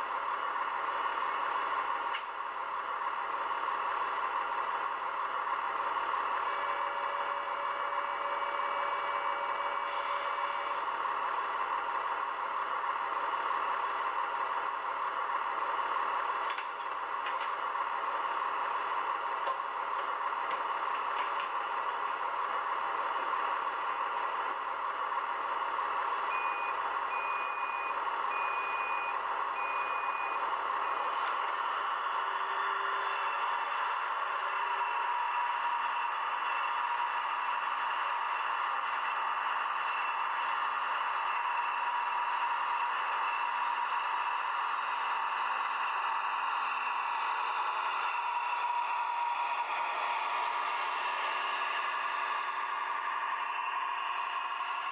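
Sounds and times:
model diesel engine idling: 0:00.0 - 0:32.8, 0:33.6 - 0:54.9.

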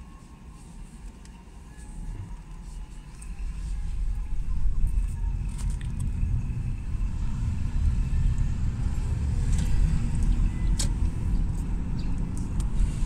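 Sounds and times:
road rumble inside moving vehicle: 0:00.0 - 0:13.0.

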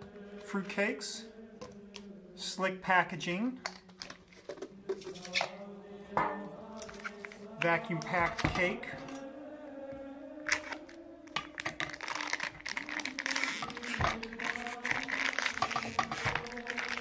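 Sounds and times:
plastic wrap crinkling and tearing: 0:10.5 - 0:17.0.

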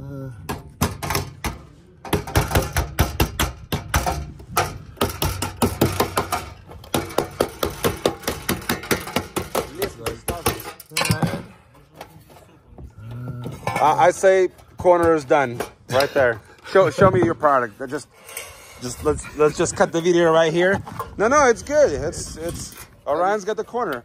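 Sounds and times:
hammer tapping on sheet metal: 0:00.5 - 0:10.8.

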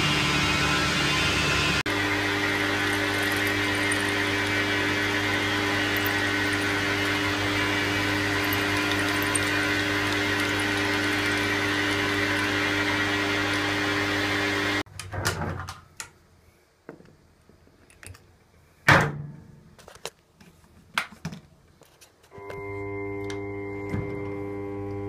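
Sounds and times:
metal lathe running: 0:01.9 - 0:14.8.

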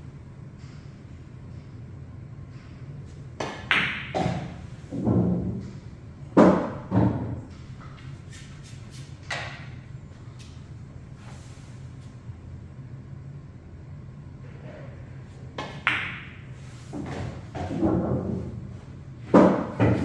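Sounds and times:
cue striking cue ball: 0:03.4 - 0:05.5, 0:15.6 - 0:18.5, 0:19.3 - 0:20.0
billiard balls clacking: 0:03.4 - 0:05.8, 0:15.6 - 0:18.6, 0:19.2 - 0:20.0.

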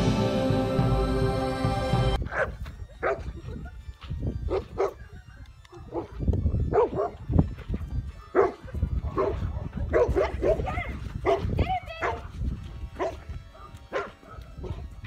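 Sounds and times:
dogs barking: 0:02.2 - 0:03.3, 0:04.5 - 0:05.1, 0:05.7 - 0:07.2, 0:08.1 - 0:12.3, 0:13.0 - 0:14.9.

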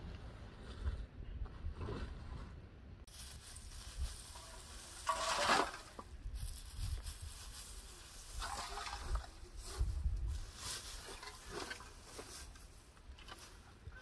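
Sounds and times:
dry hay rustling: 0:03.1 - 0:14.0.

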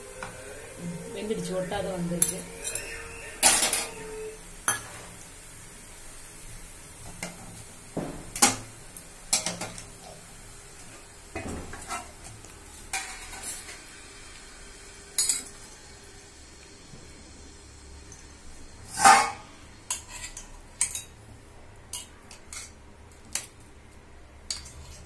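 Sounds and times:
steel cookware clinking: 0:09.3 - 0:10.2, 0:15.2 - 0:15.6, 0:18.9 - 0:21.2, 0:21.9 - 0:23.5, 0:24.5 - 0:25.0.

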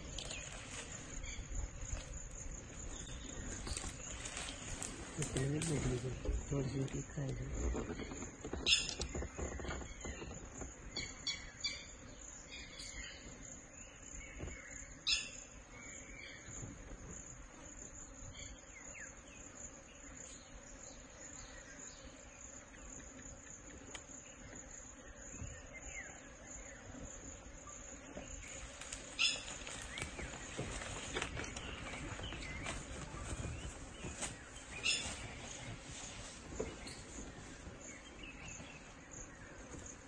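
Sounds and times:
high-pitched insect drone: 0:17.2 - 0:40.0.

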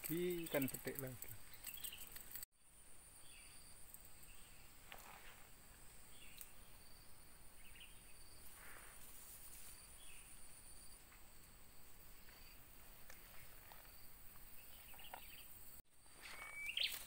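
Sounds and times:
soft rustles: 0:08.5 - 0:09.9.

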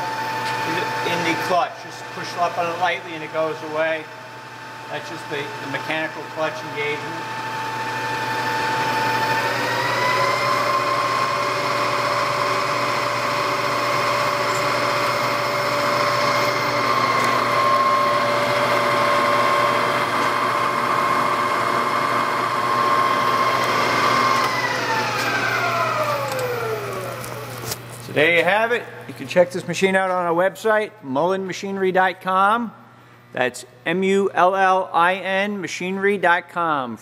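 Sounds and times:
milling machine motor whine: 0:00.0 - 0:27.8.

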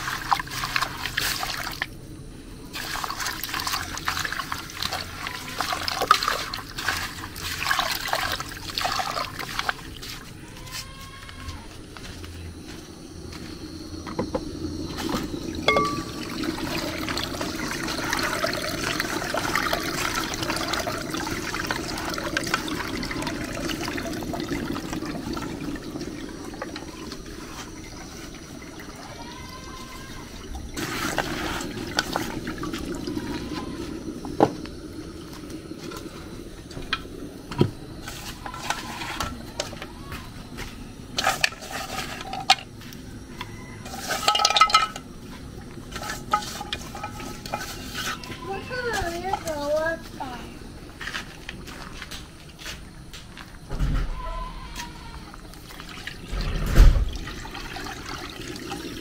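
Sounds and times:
liquid splashing into bowls: 0:00.0 - 0:02.0, 0:02.7 - 0:11.1, 0:14.2 - 0:53.6, 0:54.5 - 0:59.0
metal pot knocking and clinking: 0:15.6 - 0:16.9, 0:43.9 - 0:45.1.

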